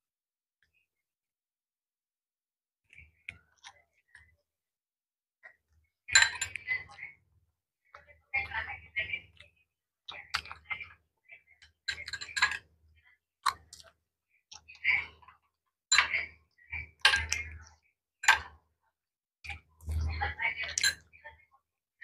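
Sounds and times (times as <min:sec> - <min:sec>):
people chewing: 0:09.3 - 0:10.8, 0:13.4 - 0:15.5.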